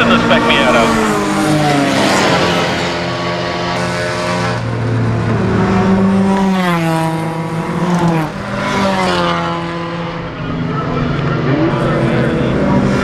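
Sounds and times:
race car engines running: 0.0 - 13.0
race car passing by: 0.0 - 13.0.

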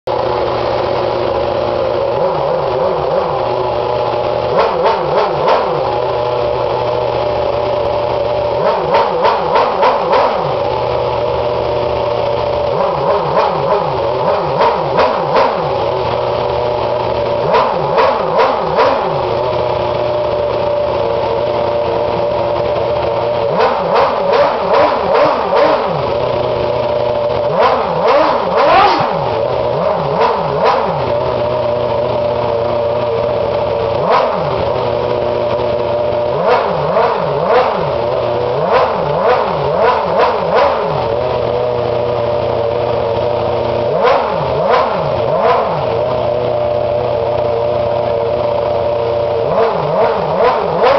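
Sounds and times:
racing car engine revving: 0.1 - 50.9.

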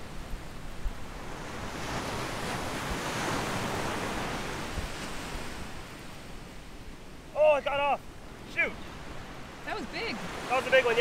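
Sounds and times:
wave breaking on a beach: 0.0 - 11.0.

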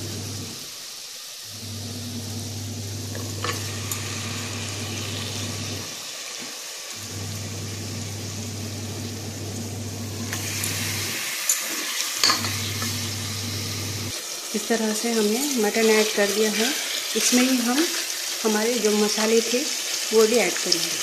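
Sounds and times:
oil sizzling in cooker: 0.0 - 21.0
steady low hum: 12.3 - 14.1.

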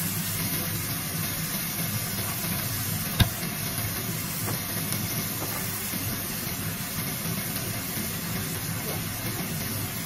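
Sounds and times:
food sizzling in a wok: 0.0 - 10.0
sharp tap: 3.2 - 3.4.

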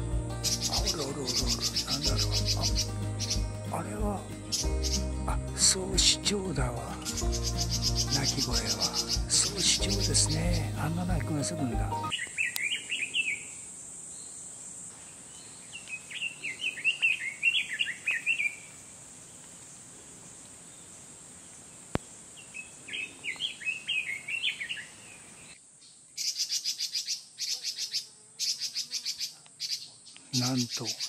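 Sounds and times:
steady high hiss: 0.0 - 23.9
bird warbling song: 0.4 - 13.6, 15.3 - 18.7, 22.4 - 31.0.

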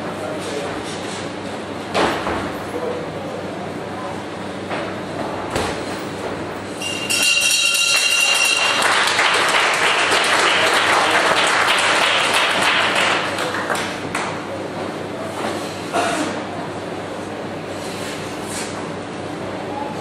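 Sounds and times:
bell ringing: 6.8 - 9.0
crowd applause: 7.9 - 14.4.

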